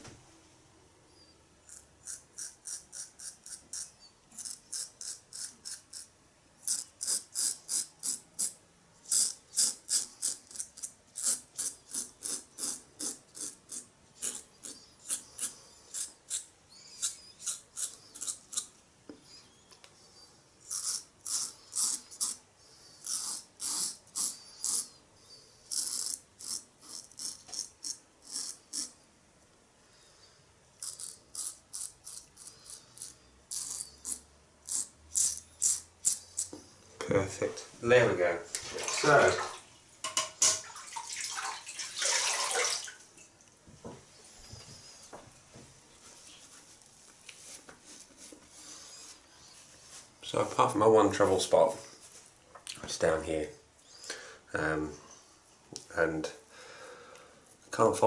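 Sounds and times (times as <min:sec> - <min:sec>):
razor scraping stubble: 0:01.7 - 0:18.8, 0:20.6 - 0:25.0, 0:25.6 - 0:29.0, 0:30.8 - 0:36.7.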